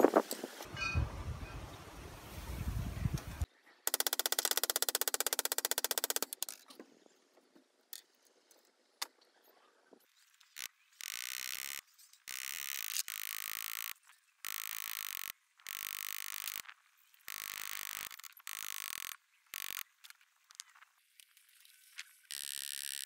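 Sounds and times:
rapid rattle of clicks: 3.9 - 6.6
wire brush power tool on metal: 10.6 - 19.9, 22.3 - 23.0.

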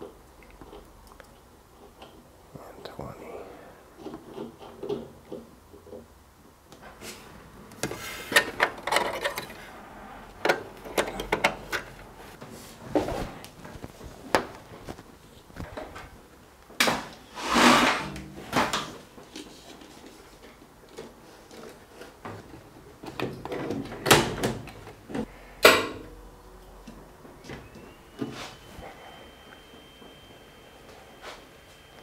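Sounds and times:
sliding and rubbing: 17.3 - 18.5
faint steady high tone: 26.1 - 32.0.

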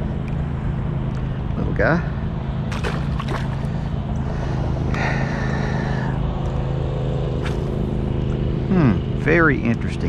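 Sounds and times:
motor hum: 0.0 - 10.0
fish splashing into water: 2.7 - 3.8.

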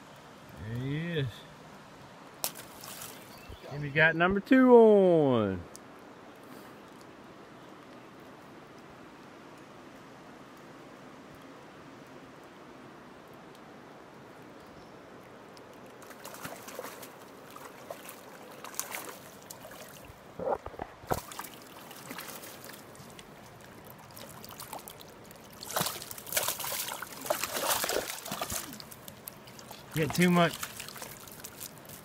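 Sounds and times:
fish splashing in water: 2.4 - 3.5, 16.0 - 20.2, 21.0 - 32.0.

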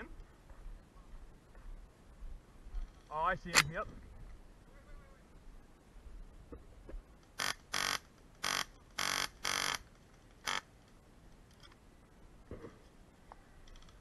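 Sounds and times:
airsoft rifle bursts: 7.4 - 9.8.

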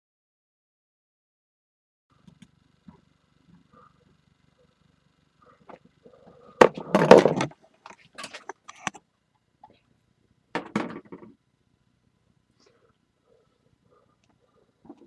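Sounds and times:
small clicks: 2.2 - 3.0
knocks on a workbench: 10.6 - 11.3.

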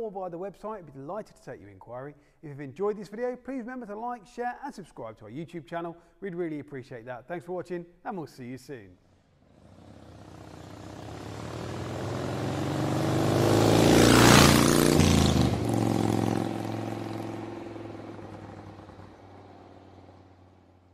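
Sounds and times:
vehicle engine driving past: 9.3 - 20.9.

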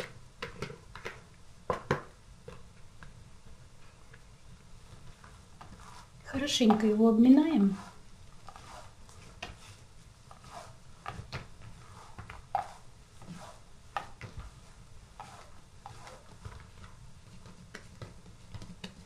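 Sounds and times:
dough slapping on table: 0.0 - 3.2.

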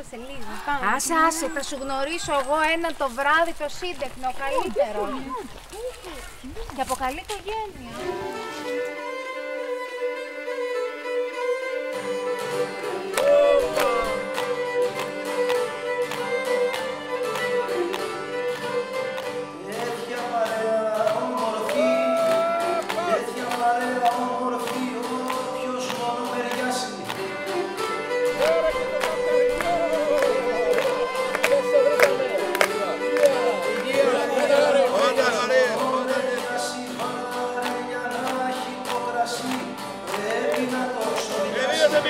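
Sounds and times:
bowed fiddle melody: 7.5 - 20.2, 25.7 - 36.4
strummed lute and guitar: 7.9 - 42.0.

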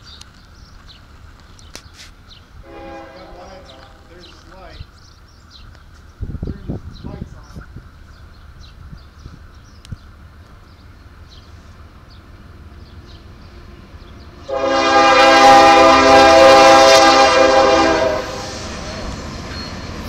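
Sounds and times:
locomotive air horn blast: 2.6 - 4.1, 14.4 - 18.7.

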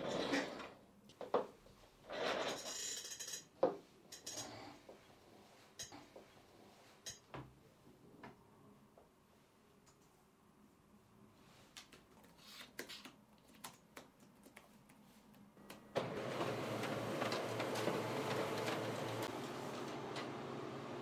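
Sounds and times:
laptop keys typing: 12.1 - 15.0.

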